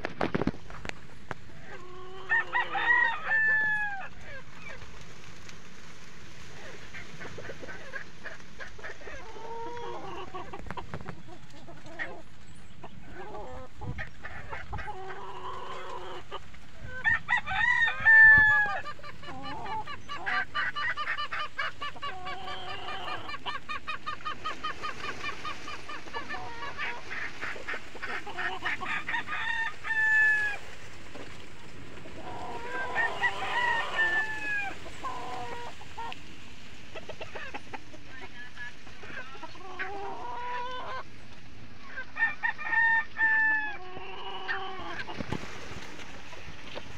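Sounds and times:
chickens clucking: 0:00.0 - 0:46.9
rooster crowing: 0:02.2 - 0:04.1, 0:17.0 - 0:18.9, 0:28.8 - 0:30.6, 0:32.3 - 0:34.8, 0:42.2 - 0:43.8.

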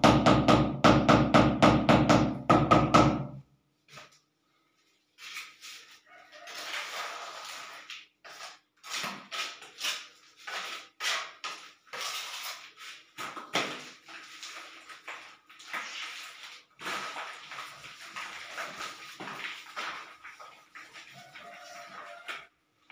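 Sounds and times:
steel trowel scraping mortar: 0:05.2 - 0:13.1.

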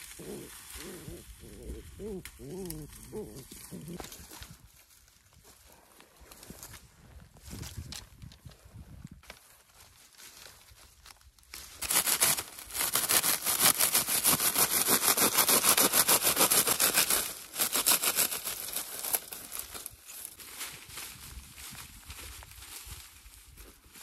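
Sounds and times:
blade cutting dry reeds: 0:11.5 - 0:20.9.

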